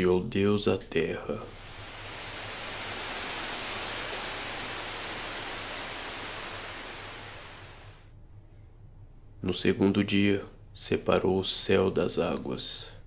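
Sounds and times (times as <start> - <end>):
steady rushing hiss: 1.2 - 8.2.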